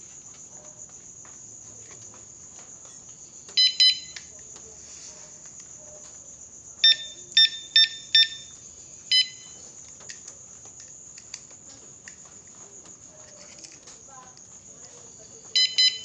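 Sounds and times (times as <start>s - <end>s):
electronic beeps: 3.6s - 4.2s, 6.8s - 8.5s, 9.1s - 9.6s, 15.6s - 16.0s.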